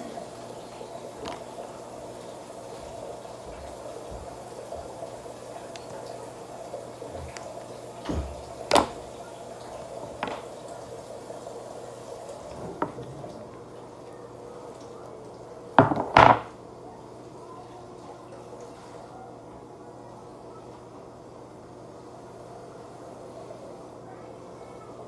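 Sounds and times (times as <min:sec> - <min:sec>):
small objects knocking on hard surface: 0:15.8 - 0:16.5.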